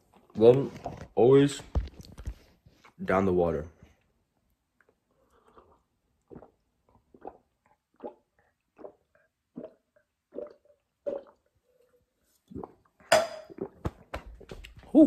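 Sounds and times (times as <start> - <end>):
person gulping water: 4.8 - 14.9.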